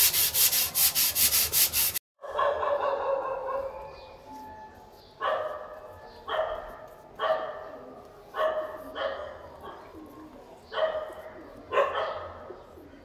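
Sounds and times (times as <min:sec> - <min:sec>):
dog barking: 0:02.2 - 0:04.1, 0:05.2 - 0:09.9, 0:10.7 - 0:12.5.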